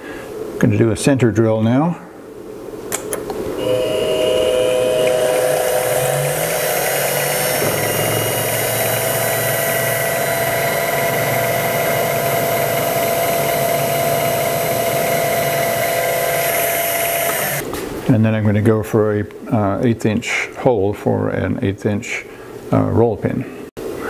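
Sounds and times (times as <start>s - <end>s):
mill spindle whine: 3.6s - 17.6s.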